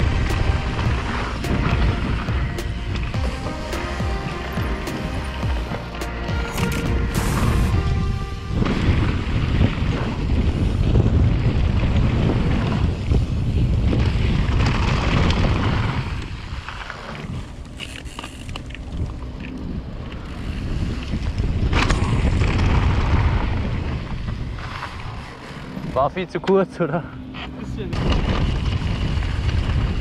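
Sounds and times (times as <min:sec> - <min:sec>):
wind buffeting microphone: 0:00.0 - 0:03.2, 0:06.6 - 0:17.7, 0:18.8 - 0:26.0, 0:27.9 - 0:30.0
bike tyres on gravel: 0:00.0 - 0:26.3, 0:27.9 - 0:30.0
bike clicks and clatters: 0:09.7 - 0:26.7, 0:27.4 - 0:30.0.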